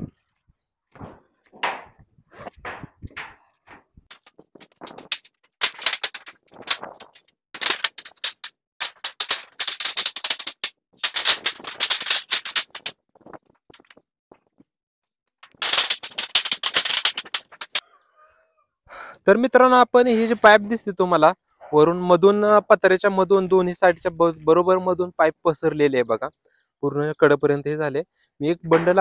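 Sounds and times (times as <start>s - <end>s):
plastic pipe crackling and rustling: 0.9s - 14.7s, 15.3s - 17.9s, 28.6s - 29.0s.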